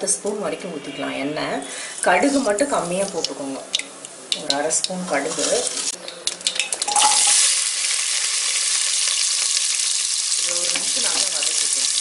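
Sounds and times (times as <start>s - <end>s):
onions sizzling in oil: 4.8s - 12.0s.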